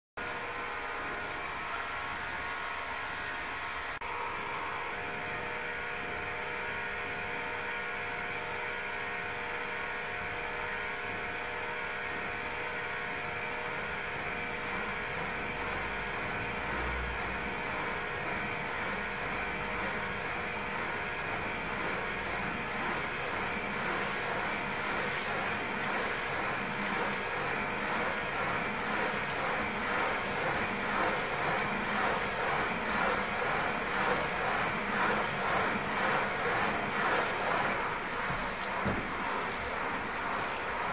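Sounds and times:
machinery hum with whining tones: 0:00.2 - 0:40.9.

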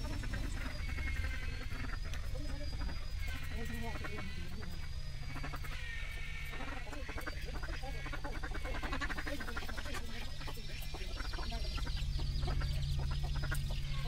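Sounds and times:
animal calls: 0:00.0 - 0:14.0
steady low hum: 0:00.0 - 0:14.0.

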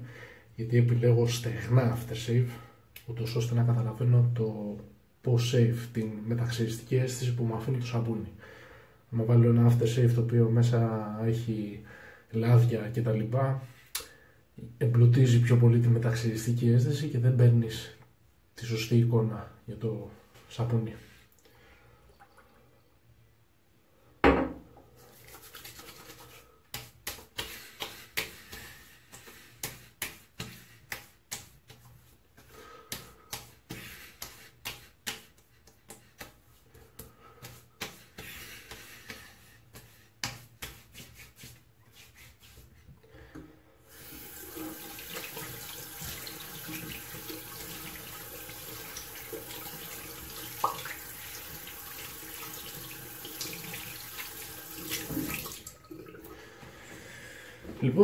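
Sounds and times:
hand slaps on skin: 0:26.7 - 0:31.9, 0:32.9 - 0:36.4, 0:37.4 - 0:41.6.

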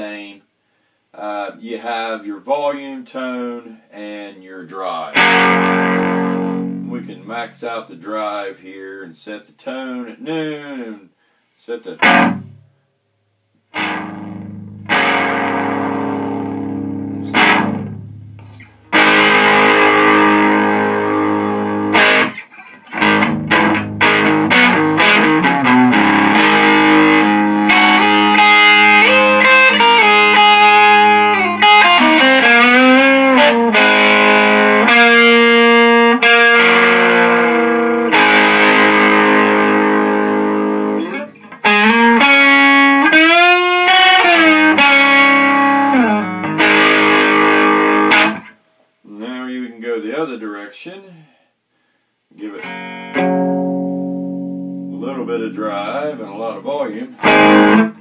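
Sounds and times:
overdriven electric guitar: 0:05.2 - 0:07.3, 0:12.0 - 0:12.7, 0:13.7 - 0:48.6, 0:52.4 - 0:55.2, 0:56.7 - 0:58.0.

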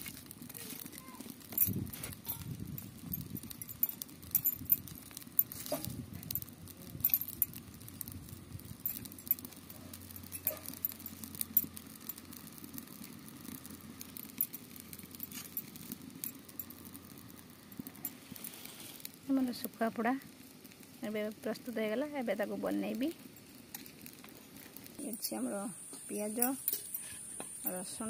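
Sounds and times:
metal tongs clicking and scraping: 0:08.8 - 0:12.2, 0:26.4 - 0:27.2.

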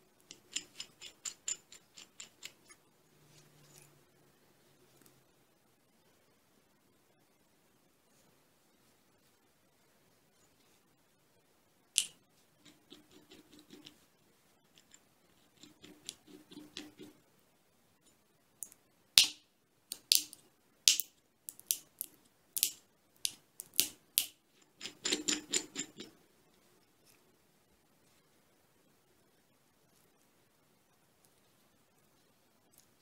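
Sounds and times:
nutshell cracking: 0:19.2 - 0:24.3.

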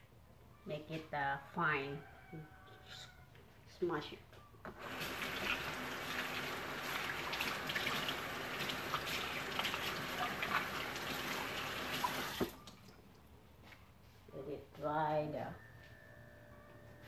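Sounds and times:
tap running into sink: 0:04.7 - 0:12.6
water splashing: 0:04.8 - 0:13.2.

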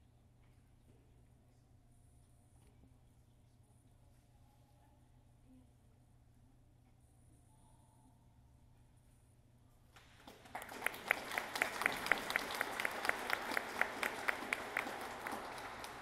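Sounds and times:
audience applauding: 0:10.0 - 0:16.0
nearby person clapping: 0:10.0 - 0:16.0.

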